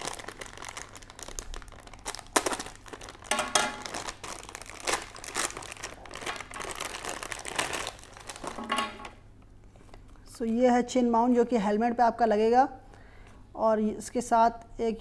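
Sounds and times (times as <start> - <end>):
plastic pouch crinkling: 0.0 - 10.2.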